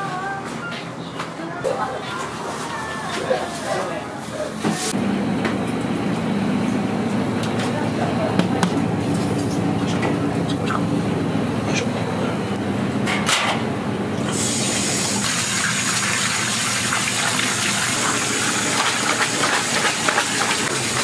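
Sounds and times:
low kitchen hum: 0.0 - 21.0
water gushing from tap: 14.3 - 21.0.

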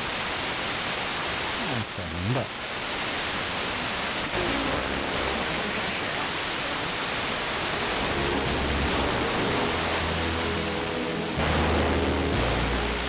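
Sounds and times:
radio static hiss: 0.0 - 13.0
faint radio station: 1.5 - 2.7.

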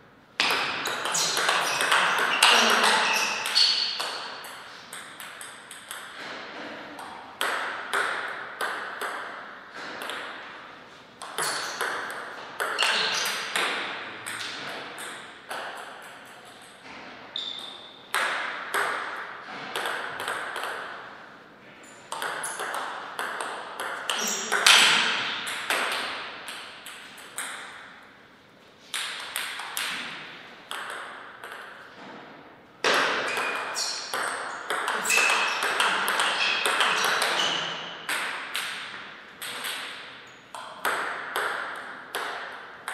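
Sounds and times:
table tennis ball clicking: 0.5 - 6.2, 30.7 - 31.8.

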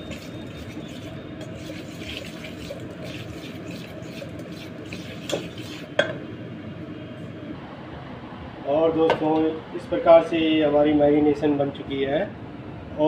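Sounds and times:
whisk beating batter in bowl: 0.0 - 6.0.

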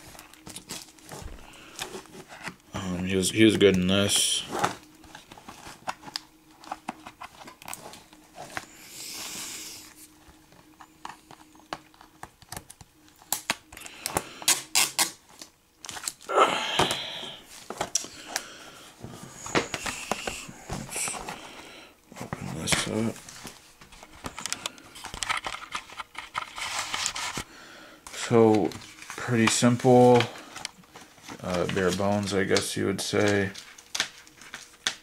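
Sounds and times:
plastic tearing: 12.0 - 17.0.

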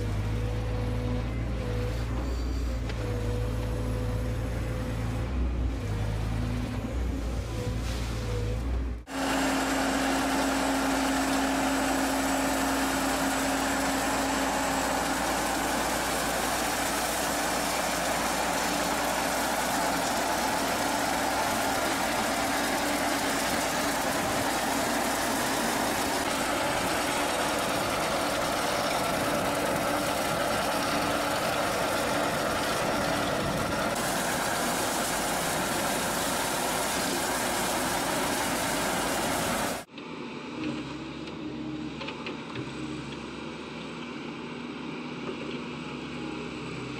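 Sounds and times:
tractor engine working: 8.4 - 39.9
cutter wheel churning soil: 9.1 - 39.9.

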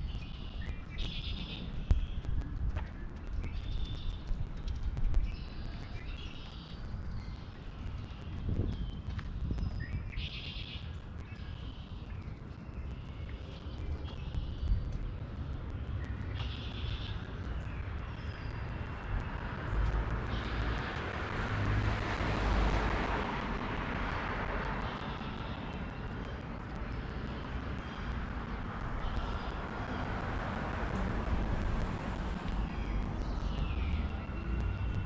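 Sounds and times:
low rumble: 10.8 - 35.0.

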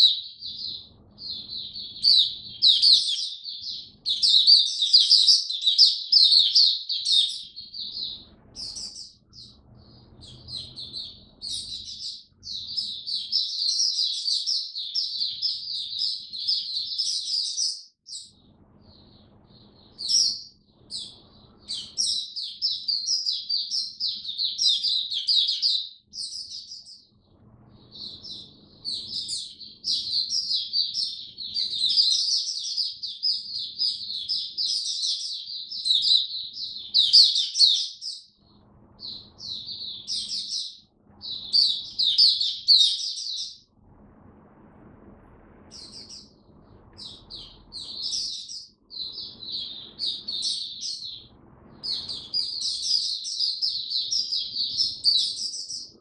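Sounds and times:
bird twittering song: 0.0 - 43.8, 45.4 - 56.0.

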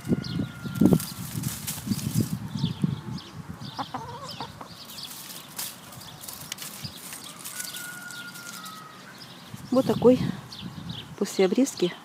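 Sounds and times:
small birds chirping: 0.0 - 12.0
hen clucking: 2.1 - 5.0.

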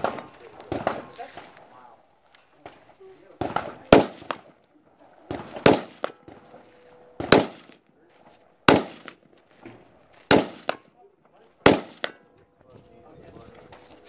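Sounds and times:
distant gunshots with echo: 0.0 - 1.2, 3.4 - 4.6, 5.3 - 6.6, 7.2 - 7.8, 8.7 - 9.3, 10.3 - 10.9, 11.6 - 12.3.

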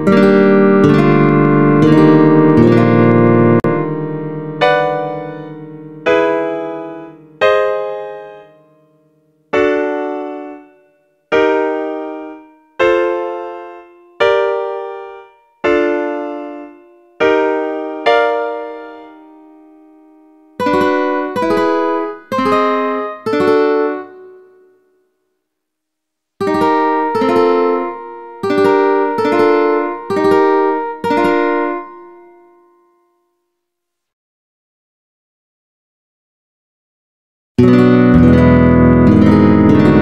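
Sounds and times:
strummed ukulele chords: 0.0 - 8.3, 20.6 - 24.2, 26.4 - 32.1, 37.6 - 40.0
piano chords: 0.0 - 24.6, 26.4 - 32.8, 37.6 - 40.0.

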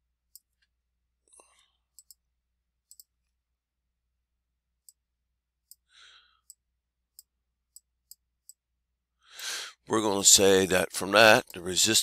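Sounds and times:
stylus clicking on pen tablet: 1.9 - 2.2, 2.8 - 3.4.

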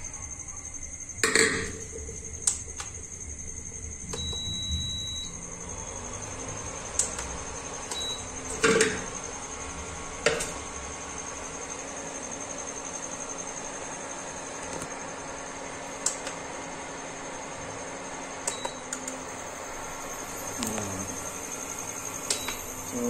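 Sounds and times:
cooktop control panel beeping: 0.5 - 23.0.

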